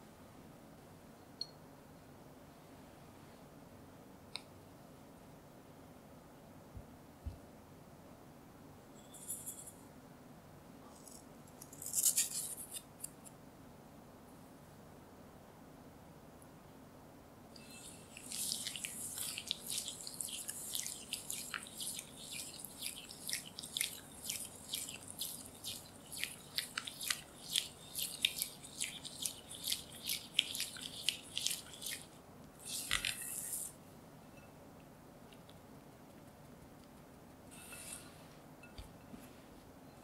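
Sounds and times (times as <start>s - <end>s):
spatula stirring sticky mixture: 17.6s - 33.8s.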